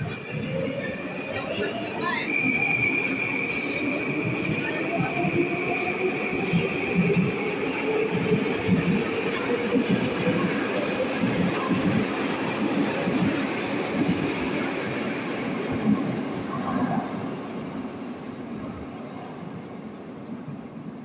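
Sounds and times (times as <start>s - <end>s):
metro train running: 0.0s - 21.0s.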